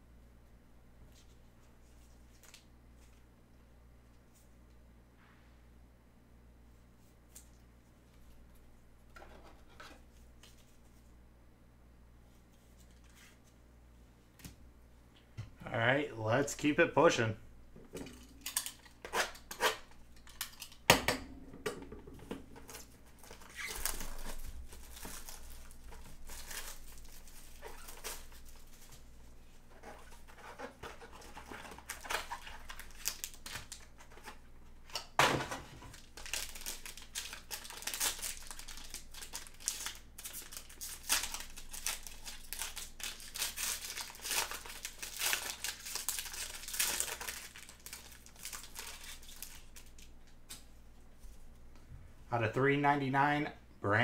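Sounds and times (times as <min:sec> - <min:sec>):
foil wrapper crinkling and tearing: 0:18.2 - 0:20.9, 0:22.6 - 0:35.1, 0:35.8 - 0:50.2.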